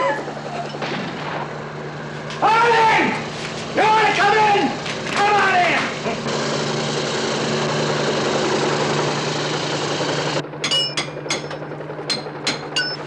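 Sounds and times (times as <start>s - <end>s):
machine drone with low hum: 0.0s - 13.0s
hammer striking steel chisel: 10.6s - 13.0s.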